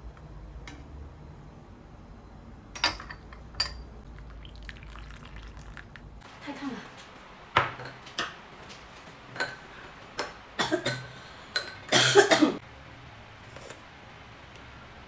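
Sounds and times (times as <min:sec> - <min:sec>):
ceramic bowl set on table: 0:02.7 - 0:05.8, 0:07.5 - 0:08.4, 0:11.0 - 0:11.9
spoon clinking in bowl: 0:02.8 - 0:03.9
woman coughing: 0:10.6 - 0:11.1, 0:11.9 - 0:12.6.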